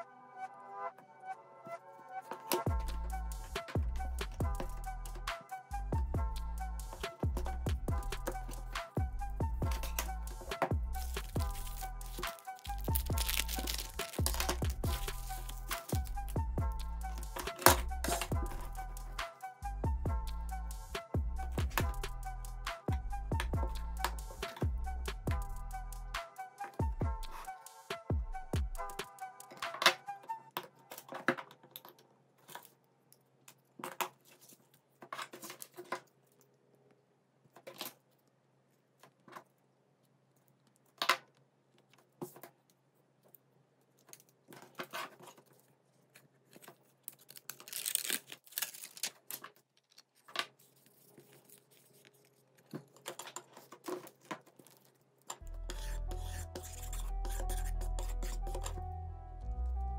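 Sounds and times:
background music: 0.0 - 31.0, 55.4 - 59.9
scratchy rubbing: 9.8 - 16.3, 55.4 - 58.8.

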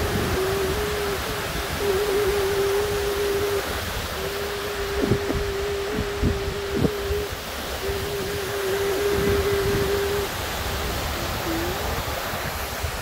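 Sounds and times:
low humming tone: 0.0 - 12.0
water rushing over rocks: 0.0 - 13.0.

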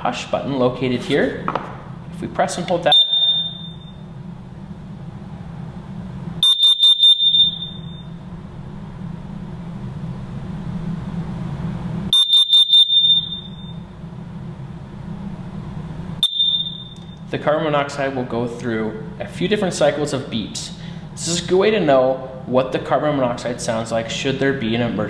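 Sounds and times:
alarm high-pitched beeps: 2.9 - 4.0, 6.4 - 8.1, 12.1 - 13.8, 16.2 - 17.2.

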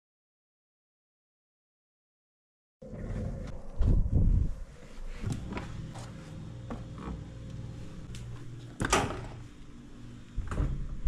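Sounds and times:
steady low rumble: 2.8 - 8.7.

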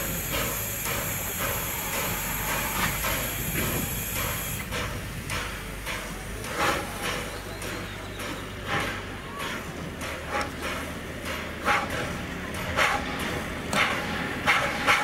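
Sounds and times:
soft steam puffs: 0.0 - 15.0
steam locomotive hissing: 0.0 - 15.0.

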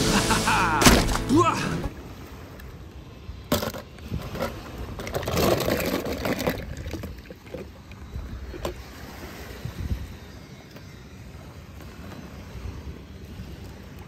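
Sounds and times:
water splashing and sloshing: 0.0 - 14.0
sharp knock: 0.8 - 1.3.

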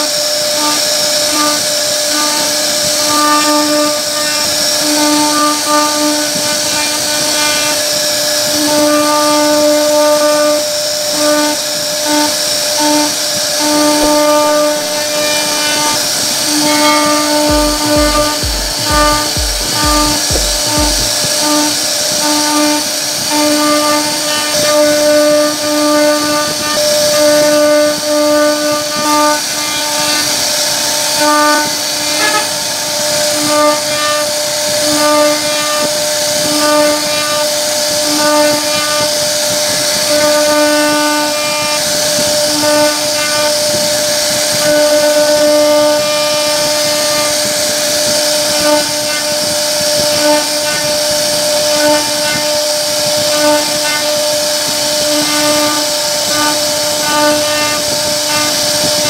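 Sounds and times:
router spindle whine cutting wood: 0.0 - 59.0.

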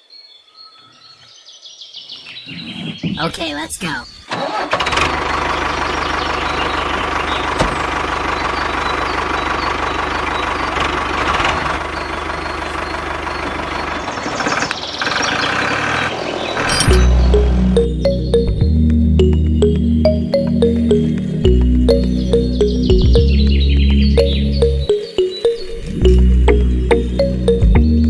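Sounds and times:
tractor engine running: 4.3 - 25.0, 25.8 - 28.0
music: 16.9 - 28.0.

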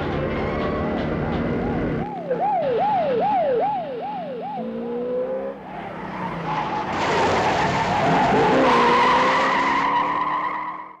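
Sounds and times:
police siren wailing: 0.1 - 11.0
car tyres skidding and squealing: 2.6 - 11.0.

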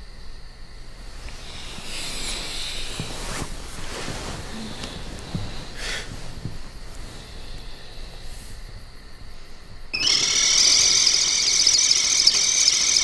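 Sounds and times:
soft knocks of movement: 1.0 - 9.9
breathy sighs: 4.3 - 8.7.

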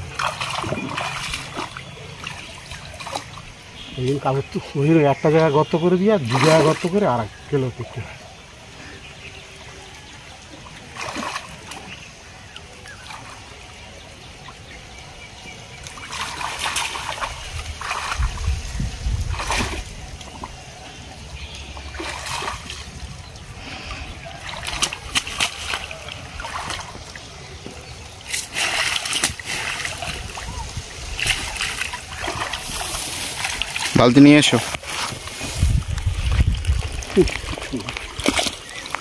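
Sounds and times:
water splashing and sloshing: 0.0 - 39.0.

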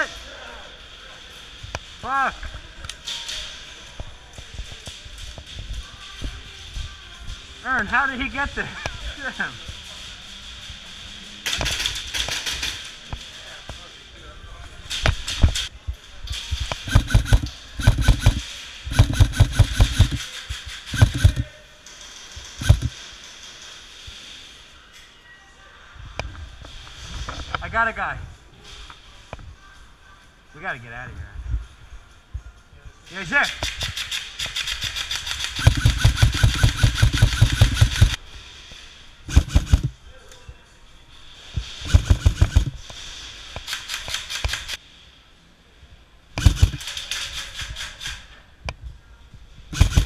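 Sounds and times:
airsoft rifle firing bursts: 16.8 - 20.3, 20.9 - 21.5, 22.6 - 22.9, 34.6 - 38.2, 39.3 - 39.9, 41.9 - 42.8, 46.4 - 47.0, 49.8 - 50.0.

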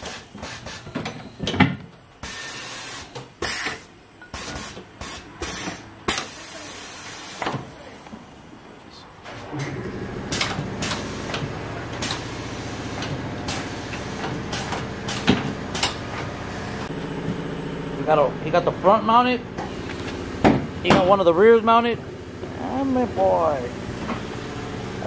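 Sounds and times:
tire changer motor running: 9.4 - 25.0.

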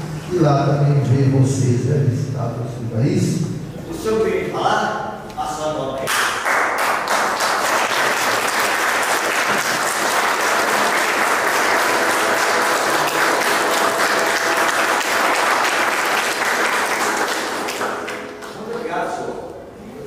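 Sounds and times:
congregation clapping: 6.1 - 18.8.

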